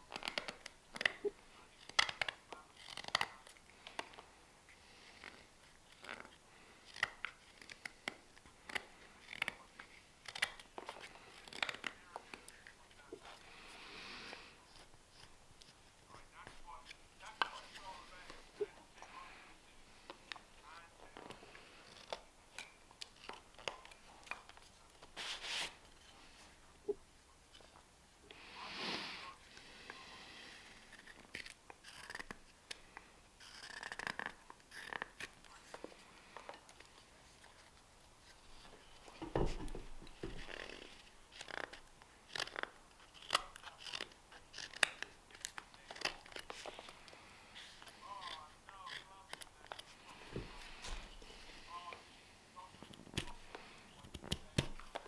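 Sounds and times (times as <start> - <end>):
carving knife cutting wood: 0.0 - 4.2, 4.9 - 13.4, 21.2 - 26.1, 30.4 - 35.5, 38.6 - 51.5, 53.1 - 55.0
knife scraping wood: 30.5 - 32.4, 33.4 - 35.4, 39.4 - 51.5.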